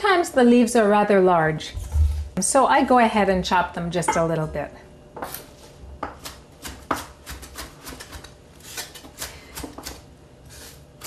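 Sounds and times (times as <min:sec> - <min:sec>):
knife chopping on wooden board: 0:06.0 - 0:10.0.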